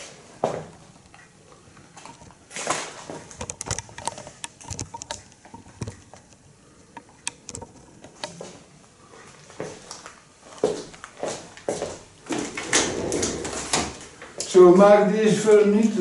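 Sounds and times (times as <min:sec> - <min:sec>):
footsteps on wooden floor: 0:10.6 - 0:14.5.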